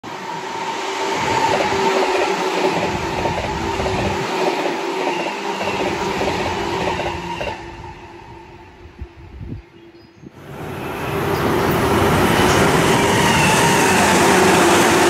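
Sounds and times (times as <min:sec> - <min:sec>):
train hum: 0:00.0 - 0:15.0
train wheels clattering on rails: 0:01.3 - 0:07.6.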